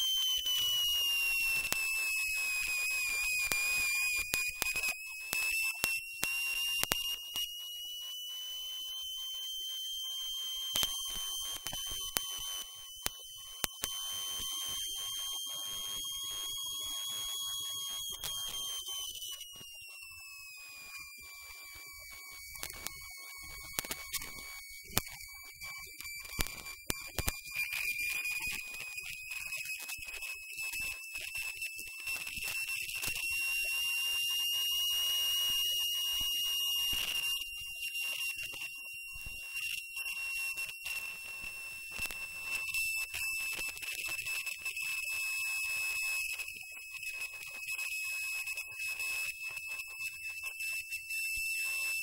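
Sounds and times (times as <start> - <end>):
high-pitched whine: 0.0 - 46.7
sharp clicks: 10.7 - 14.1, 22.5 - 25.2.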